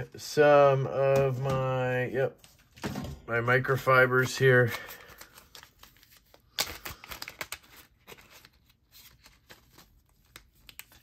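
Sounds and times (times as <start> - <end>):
plastic packet rustling: 4.2 - 11.0.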